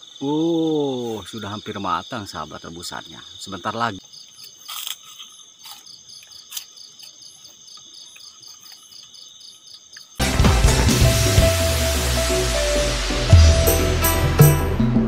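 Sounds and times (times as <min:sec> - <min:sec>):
crickets chirping: 0:00.0 - 0:10.2
loud music: 0:10.2 - 0:15.0.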